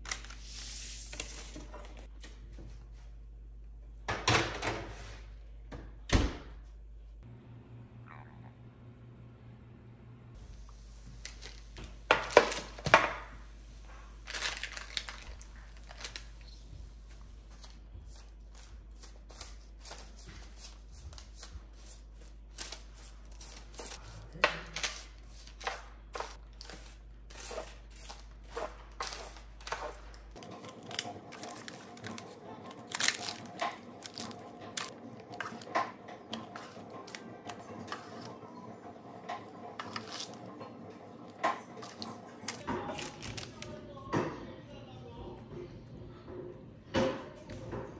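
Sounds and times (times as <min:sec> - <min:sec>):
parchment crinkling: 0:10.6 - 0:38.4, 0:41.6 - 0:43.7.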